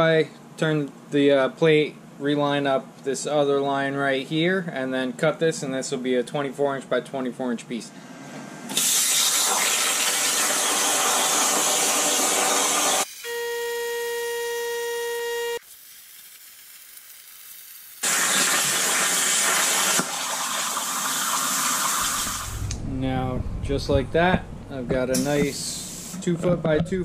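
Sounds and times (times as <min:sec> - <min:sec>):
plasma torch cutting hiss: 0:08.7 - 0:13.3, 0:15.6 - 0:22.8, 0:25.1 - 0:26.3
steady whining tone: 0:22.2 - 0:27.0.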